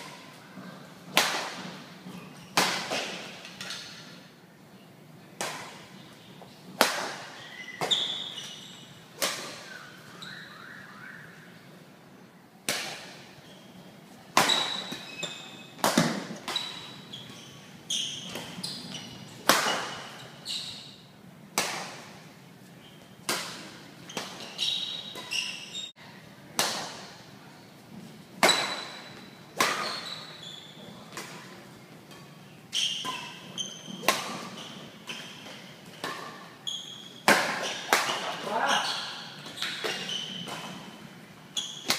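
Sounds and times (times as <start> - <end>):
racket hitting shuttlecock: 1.0 - 4.1, 5.4 - 6.0, 6.7 - 9.8, 12.6 - 13.4, 14.3 - 17.3, 18.2 - 20.3, 21.5 - 22.3, 23.2 - 25.6, 26.6 - 27.2, 28.4 - 30.4, 31.0 - 41.1
shoes squeaking on floor: 1.6 - 4.1, 6.2 - 10.9, 13.2 - 21.1, 22.7 - 26.0, 28.4 - 31.6, 32.6 - 41.9.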